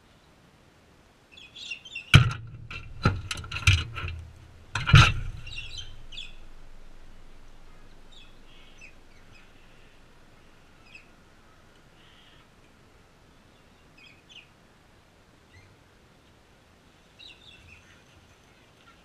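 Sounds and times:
short chirping bird calls: 5.4 - 12.5.

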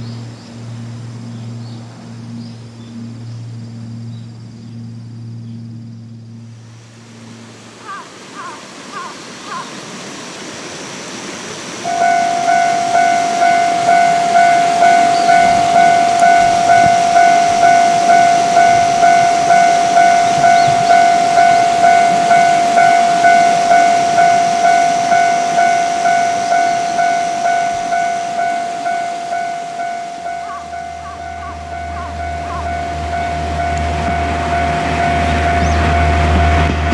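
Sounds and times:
level crossing warning bell: 11.8 - 36.9.

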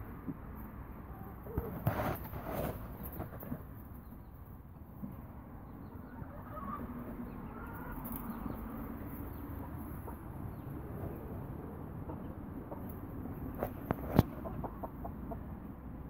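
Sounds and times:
phone rustling through hay: 1.6 - 3.6
hens clucking: 5.6 - 15.8.

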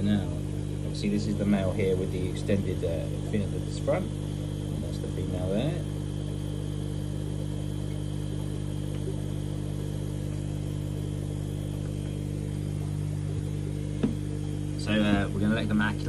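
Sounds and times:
aquarium equipment humming: 0.0 - 16.0.

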